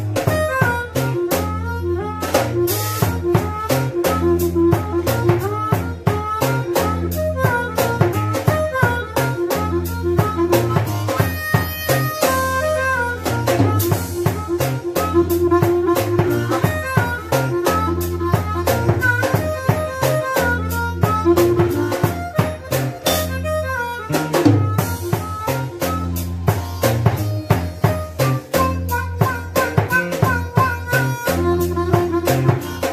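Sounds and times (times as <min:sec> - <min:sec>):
amplified blues harmonica wailing: 0:00.0 - 0:32.9
drum kit steady beat: 0:00.0 - 0:32.9.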